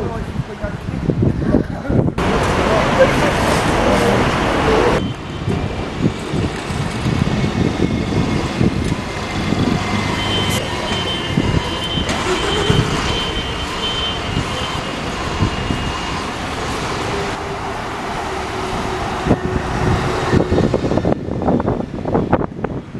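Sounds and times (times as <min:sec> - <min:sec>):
bus engine and tyres rumbling: 0:00.0 - 0:22.9
wind knocking on microphone: 0:05.4 - 0:10.0.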